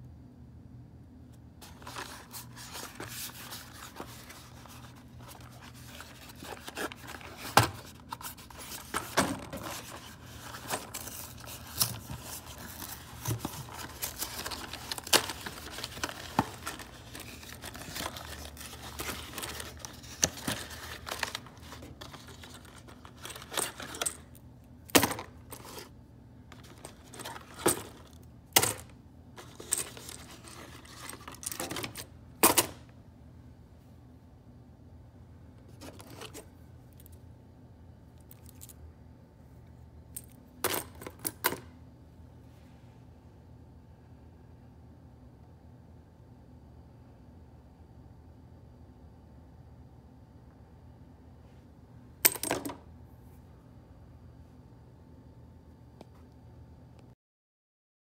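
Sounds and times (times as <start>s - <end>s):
cardboard rustling and tearing: 1.6s - 23.4s.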